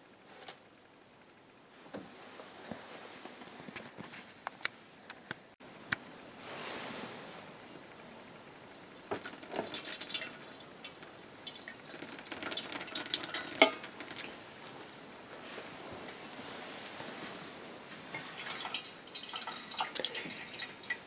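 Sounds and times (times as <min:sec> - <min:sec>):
tea pouring: 0:09.1 - 0:14.3, 0:18.2 - 0:21.0.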